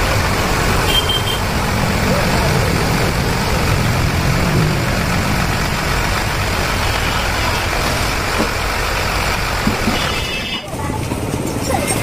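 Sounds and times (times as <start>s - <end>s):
vehicle engine rumbling: 0.0s - 12.0s.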